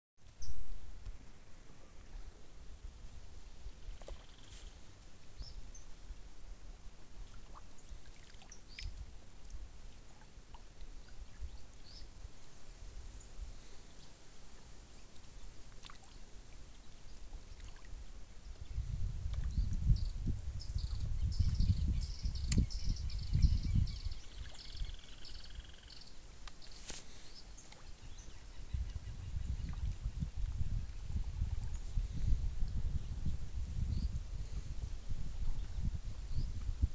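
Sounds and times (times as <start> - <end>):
small splashes and ticks: 3.9 - 4.6, 7.2 - 11.0, 15.1 - 18.6, 26.4 - 28.0
water lapping: 7.2 - 10.9, 14.5 - 18.0
wind rumble on microphone: 17.5 - 25.8, 27.8 - 36.9.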